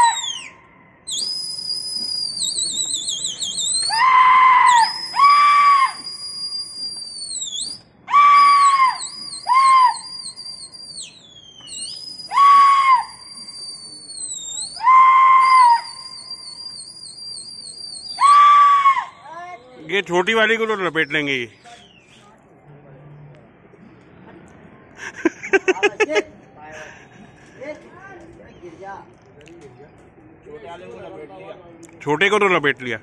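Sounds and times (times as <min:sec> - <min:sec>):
high-pitched shouted cries: 0:00.0 - 0:00.8, 0:03.4 - 0:06.1, 0:08.0 - 0:10.4, 0:12.2 - 0:13.4, 0:18.1 - 0:19.7
long warbling whistle: 0:00.0 - 0:19.8.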